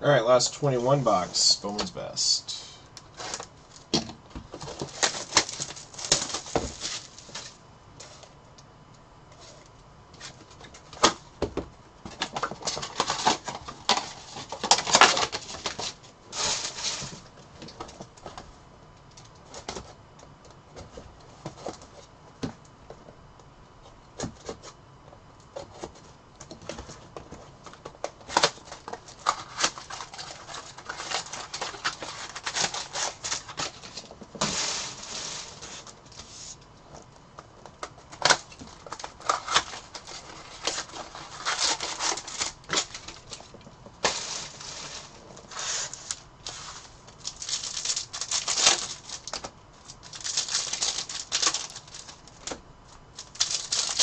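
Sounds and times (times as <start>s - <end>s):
plastic wrapping crinkling: 4.6s - 8.3s, 27.6s - 54.0s.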